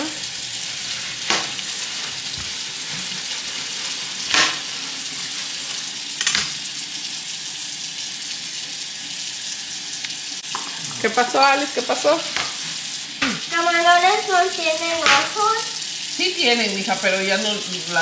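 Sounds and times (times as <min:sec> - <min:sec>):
water splashes: 0:00.0 - 0:07.0, 0:10.1 - 0:18.0
tap running into sink: 0:01.2 - 0:03.3, 0:04.2 - 0:04.8, 0:06.2 - 0:06.7, 0:10.0 - 0:10.8, 0:12.2 - 0:13.5, 0:14.8 - 0:15.5.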